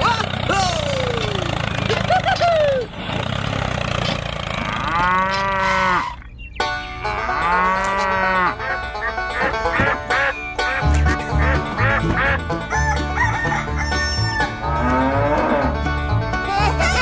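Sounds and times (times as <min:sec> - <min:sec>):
cow mooing: 0:04.5 - 0:06.2, 0:07.1 - 0:08.8, 0:14.2 - 0:15.9.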